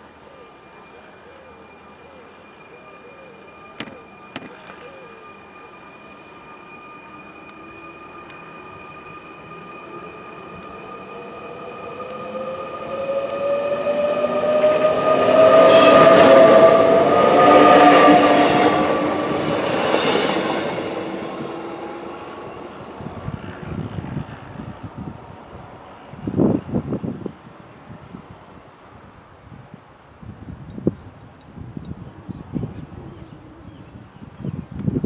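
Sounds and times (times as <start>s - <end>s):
electric train passing at speed: 0.0s - 35.0s
train motor whine: 1.6s - 28.2s.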